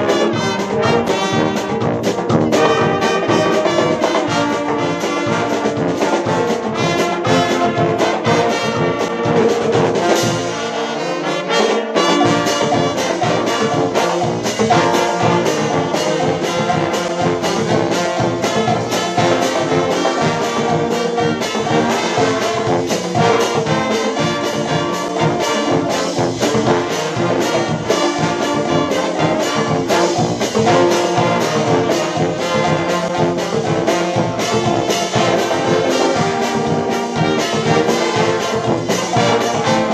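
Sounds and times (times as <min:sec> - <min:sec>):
brass band playing: 0:00.0 - 0:39.9
drums keeping steady beat: 0:00.0 - 0:39.9.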